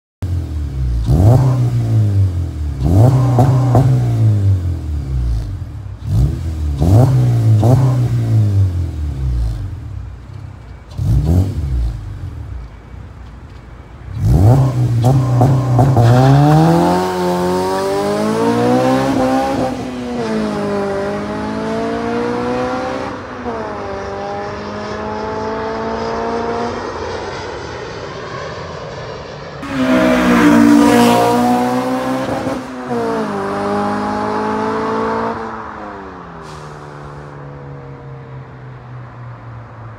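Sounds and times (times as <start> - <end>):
car engine revving: 0.2 - 12.8, 14.0 - 29.0, 29.6 - 37.2
car accelerating through gears: 1.0 - 9.6, 14.2 - 27.6, 29.6 - 37.1.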